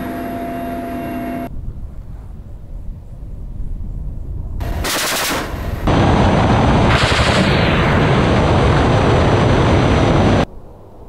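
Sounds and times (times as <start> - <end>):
rapid crackle of rocket salvo: 4.6 - 10.5
rocket whoosh: 4.6 - 10.5.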